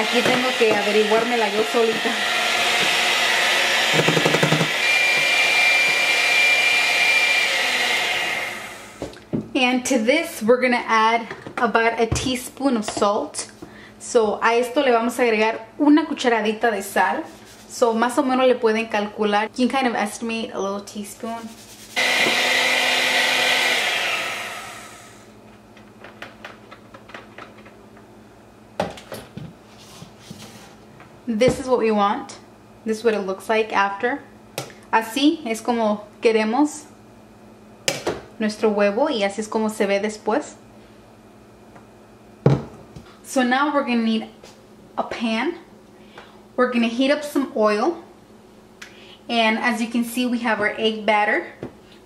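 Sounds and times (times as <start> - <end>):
electric hand mixer running: 0.0 - 9.2, 22.0 - 25.3.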